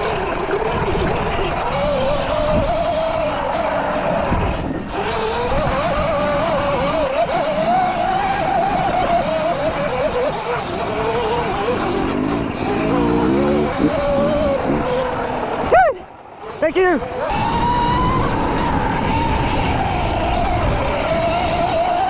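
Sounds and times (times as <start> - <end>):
electric motor whining: 0.0 - 22.0
ride rattle: 0.0 - 22.0
wind: 0.0 - 22.0
lower rising tone: 11.2 - 16.2.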